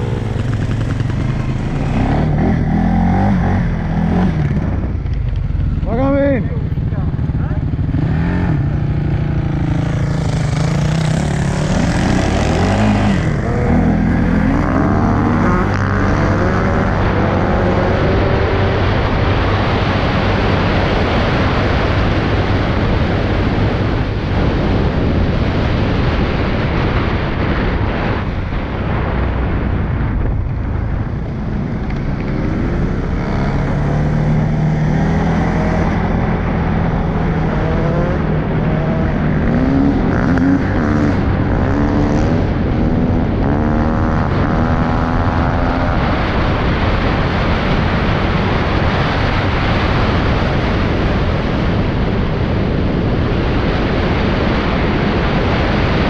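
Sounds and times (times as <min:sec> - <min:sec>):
quad engine revving: 0:00.0 - 0:05.9, 0:07.0 - 0:20.0, 0:31.5 - 0:48.3
wind rushing: 0:00.0 - 0:06.0, 0:07.2 - 0:56.0.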